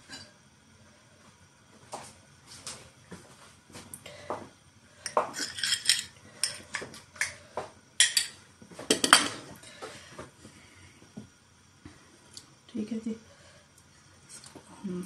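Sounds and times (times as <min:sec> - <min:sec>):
dishes clinking and knocking: 0:05.1 - 0:07.0, 0:08.0 - 0:09.5.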